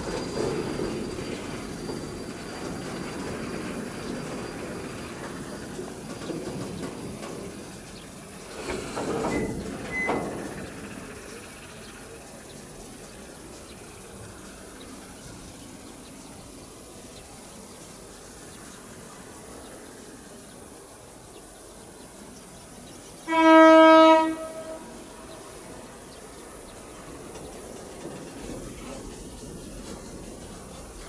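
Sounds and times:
locomotive horn blast: 23.2s - 25.2s.

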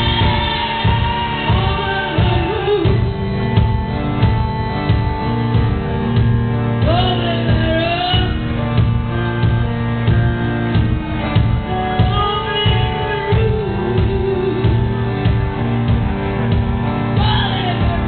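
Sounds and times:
person singing: 0.0s - 3.3s, 11.7s - 15.0s
live band playing: 0.0s - 18.0s.

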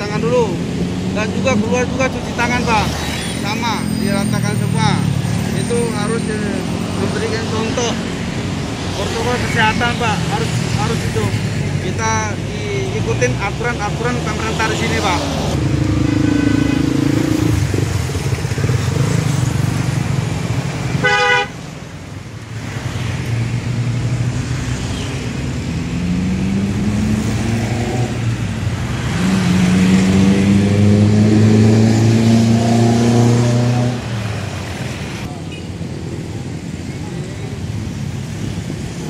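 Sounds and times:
vehicle engines droning: 0.0s - 39.0s
car horn toot: 21.0s - 21.6s.

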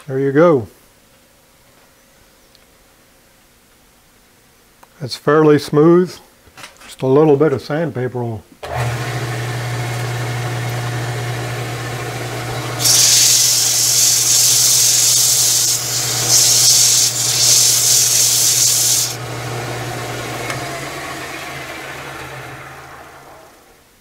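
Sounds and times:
lathe motor humming: 8.6s - 23.8s
sandpaper hissing on spinning wood: 12.7s - 19.2s.

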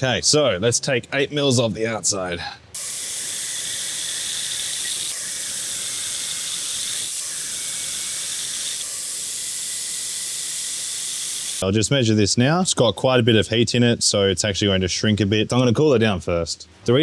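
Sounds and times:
compressed air hissing: 2.8s - 11.6s
faint lathe cutting whine: 2.8s - 11.6s.

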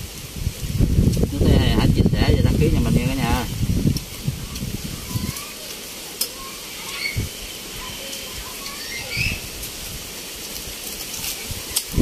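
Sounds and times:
steady hiss: 0.0s - 12.0s
birds chirping: 4.1s - 9.6s.

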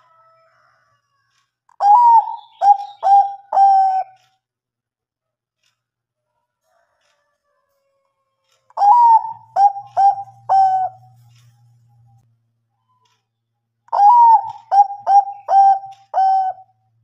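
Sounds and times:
dove cooing: 1.8s - 4.2s, 8.8s - 11.2s, 13.9s - 16.7s.

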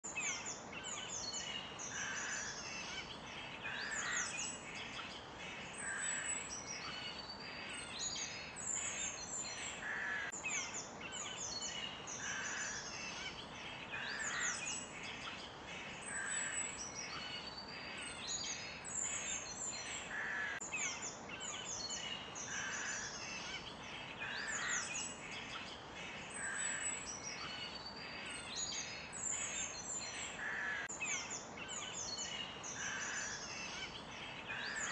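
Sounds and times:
steady background hiss: 0.1s - 34.9s
birds chirping and whistling: 30.9s - 34.9s.

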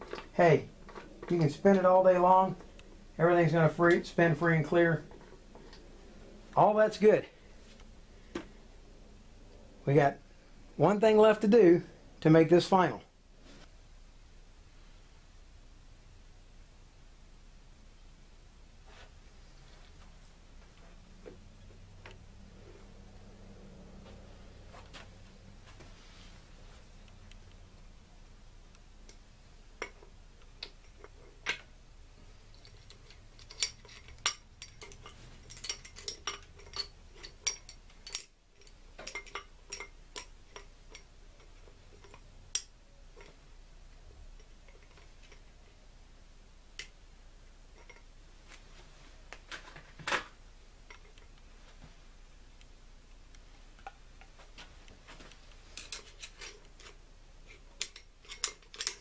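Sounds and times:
small metallic clicks and taps: 32.5s - 43.4s, 55.8s - 59.0s.

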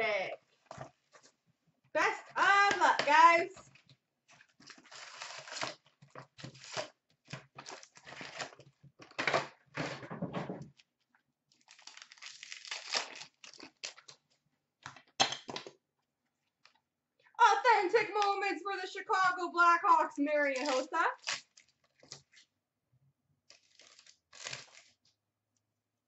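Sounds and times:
packs crinkling and rustling: 3.7s - 9.2s, 11.5s - 14.3s, 23.5s - 25.0s
cardboard box tearing: 4.7s - 6.9s, 23.5s - 25.0s.

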